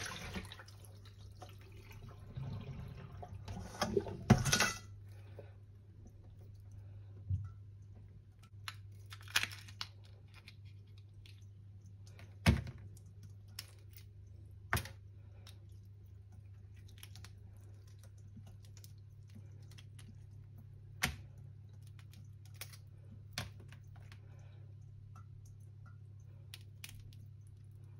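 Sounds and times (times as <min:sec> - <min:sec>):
clicks and knocks of kitchen things: 0:03.6 - 0:05.0.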